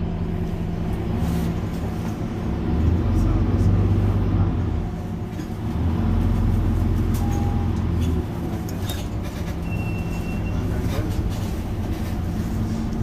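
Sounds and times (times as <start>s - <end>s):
bus engine humming: 0.0s - 13.0s
short high beep: 7.2s - 7.8s, 9.6s - 10.6s.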